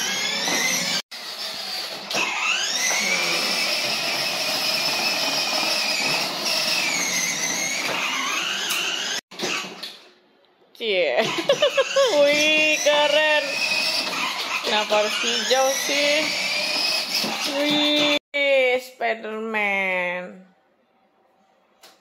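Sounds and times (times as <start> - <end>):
toy motorcycle motor whining: 0.0 - 9.9, 11.2 - 18.2.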